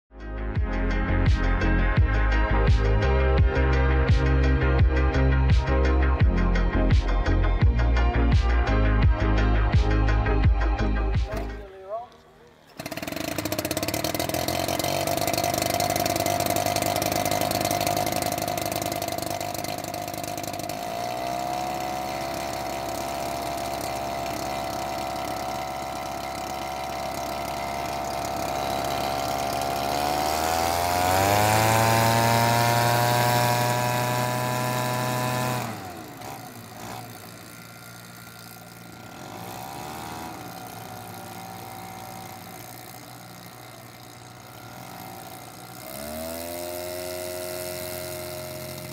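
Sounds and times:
model airplane engine revving: 11.1 - 48.9.

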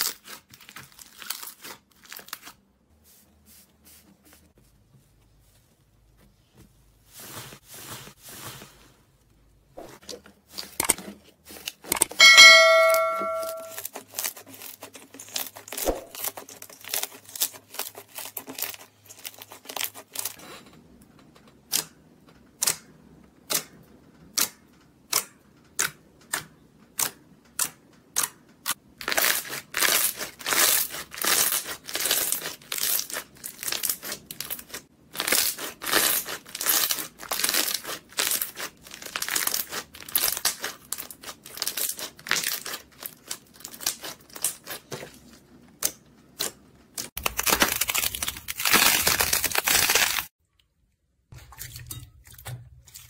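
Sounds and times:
slime popping and crackling: 29.0 - 44.9, 47.1 - 50.3.

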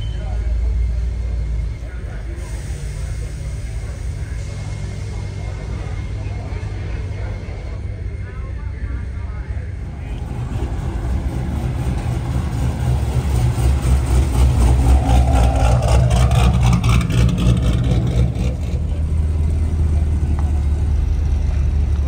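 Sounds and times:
car engine and exhaust rumbling: 0.0 - 22.0.

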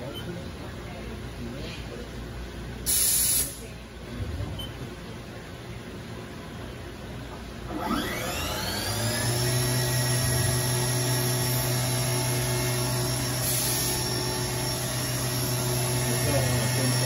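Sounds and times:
machine spindle whine: 7.7 - 17.0.

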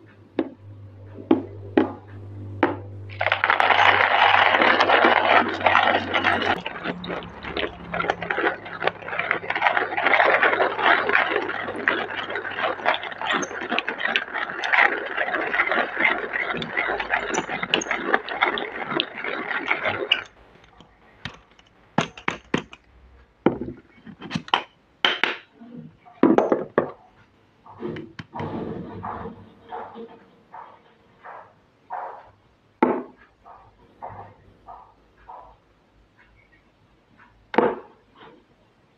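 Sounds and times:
hand coffee grinder grinding: 1.1 - 22.9.

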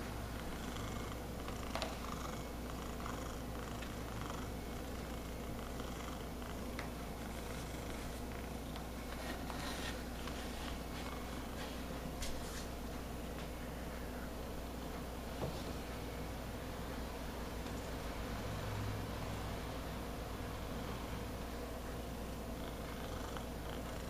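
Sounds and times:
cat purring: 0.0 - 12.2, 22.0 - 24.0.

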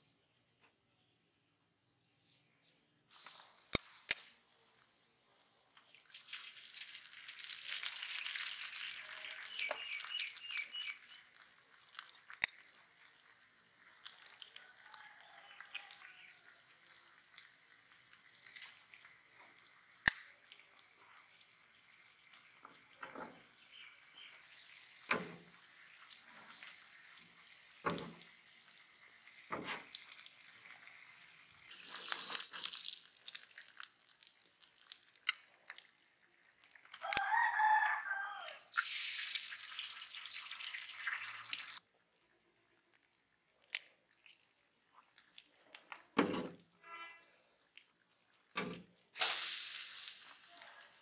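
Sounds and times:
rooster crowing: 14.6 - 16.4, 37.0 - 38.7.

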